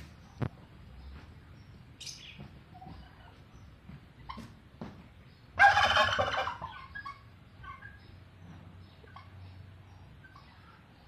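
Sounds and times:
turkey gobbling: 5.6s - 8.1s.

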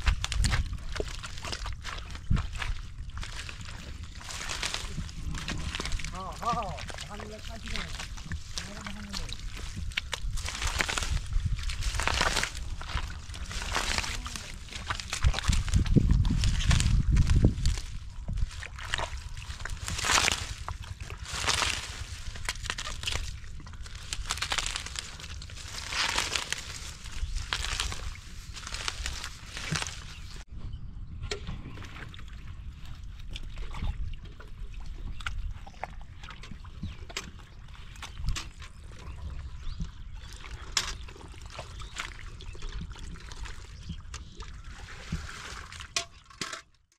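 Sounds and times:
leaves rustling: 0.0s - 30.5s
squelching in wet mud: 0.0s - 30.5s, 31.6s - 46.6s
water sloshing: 0.0s - 30.5s, 31.7s - 46.6s.

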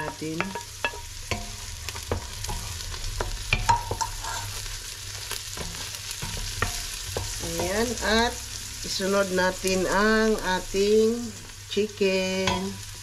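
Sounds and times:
wooden spoon knocking on metal pot: 0.0s - 4.2s
vegetables sizzling in oil: 0.0s - 13.0s.

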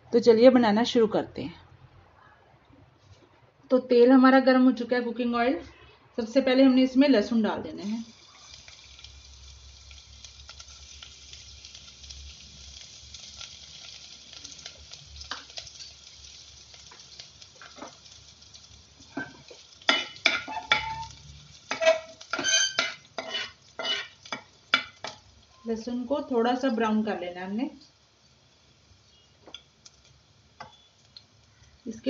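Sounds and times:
garlic sizzling in oil: 6.4s - 32.0s
utensil scraping metal pan: 21.7s - 24.2s.

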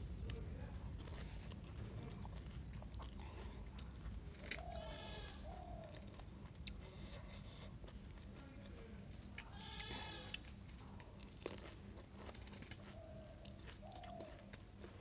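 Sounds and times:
goat or sheep bleat: 4.8s - 5.4s, 9.5s - 10.4s
crisp shells cracking: 10.3s - 12.9s.

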